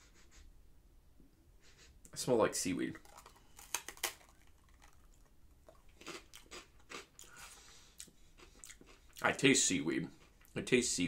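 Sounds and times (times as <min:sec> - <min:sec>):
rice cracker crunching: 0:03.0 - 0:07.6
chewing crunches: 0:03.0 - 0:09.4.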